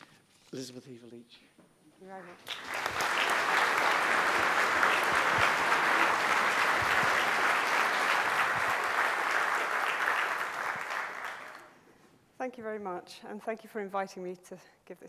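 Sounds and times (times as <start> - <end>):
audience applauding: 2.2 - 11.8.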